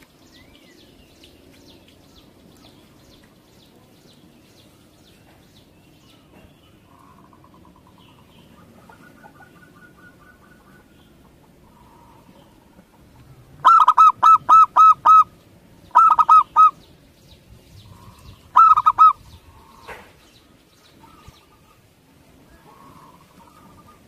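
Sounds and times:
dove cooing: 6.9s - 16.8s, 17.8s - 20.1s, 22.5s - 24.0s.

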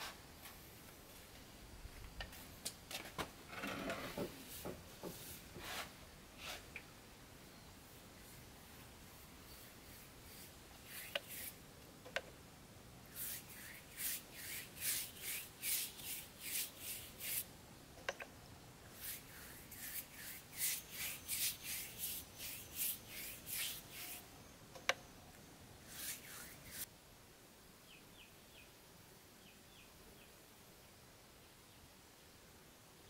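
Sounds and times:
paintbrush swishing on wood: 4.4s - 6.7s, 8.2s - 11.6s, 13.1s - 17.5s, 18.9s - 24.3s, 25.9s - 26.9s.

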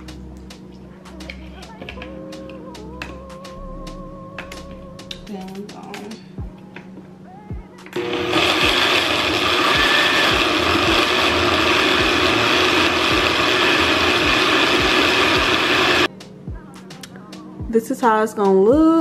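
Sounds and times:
blender running: 8.0s - 16.1s.

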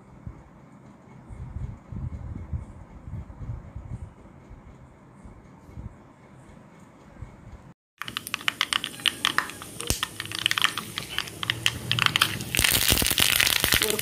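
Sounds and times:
seeds popping in hot oil: 8.0s - 14.0s.

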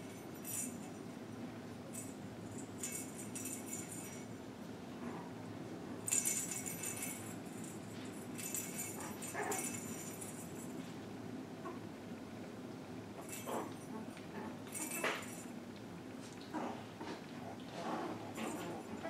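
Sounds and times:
jingling toy ball: 0.0s - 0.9s, 2.0s - 4.3s, 6.1s - 10.8s, 13.2s - 14.0s, 14.6s - 15.5s.

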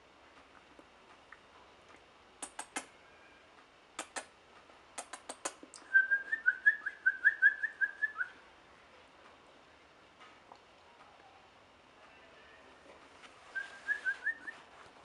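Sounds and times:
sharp clicks: 2.4s - 2.9s, 4.0s - 4.3s, 5.0s - 5.9s.

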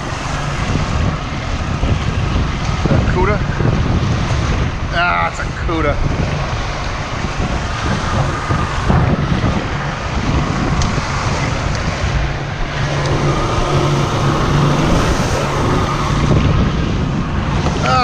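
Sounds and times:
wind buffeting microphone: 0.0s - 18.0s
boat engine humming: 11.0s - 17.8s
water rushing past hull: 11.0s - 17.8s.

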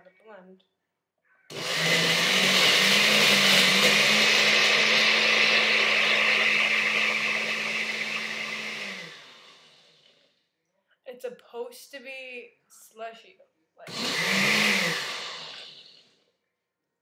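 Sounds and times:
blender crushing ice: 1.5s - 10.2s, 13.9s - 16.2s.

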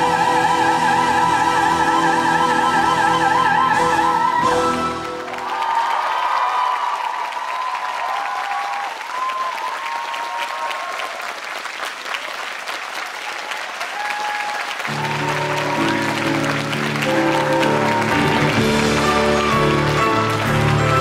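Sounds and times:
audience clapping: 4.7s - 21.0s.

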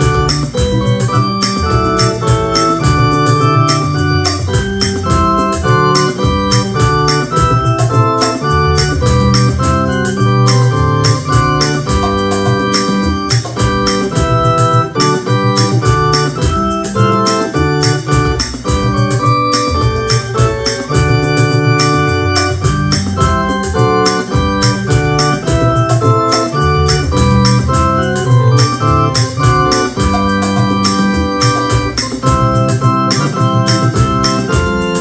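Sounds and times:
electronic keyboard playing hymn: 0.0s - 35.0s.

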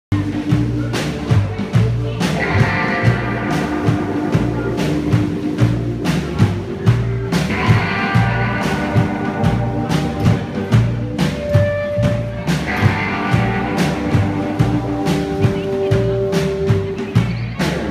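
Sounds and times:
drum kit beat: 0.1s - 17.9s
hollow-body electric guitar: 0.1s - 17.9s
upright double bass: 0.1s - 17.9s.

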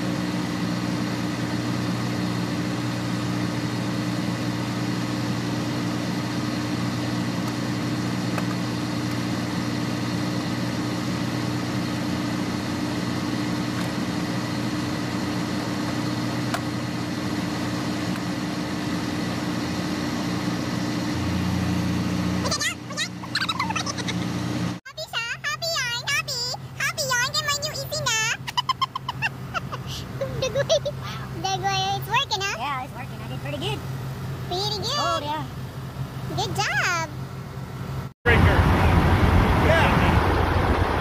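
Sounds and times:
mechanical drone with low hum: 0.0s - 24.8s, 25.8s - 41.0s.

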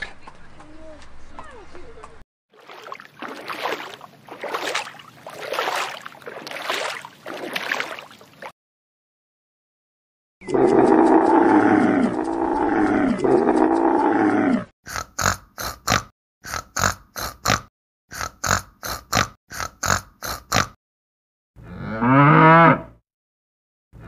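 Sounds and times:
wild boar grunting: 10.4s - 20.8s
cow mooing: 10.5s - 14.6s, 21.6s - 23.0s
camel groaning call: 10.5s - 14.7s, 21.6s - 22.9s.

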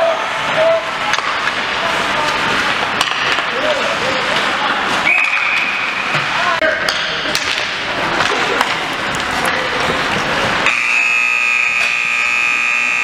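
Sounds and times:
arena crowd noise: 0.0s - 13.0s
scoreboard buzzer tone: 10.6s - 13.0s.

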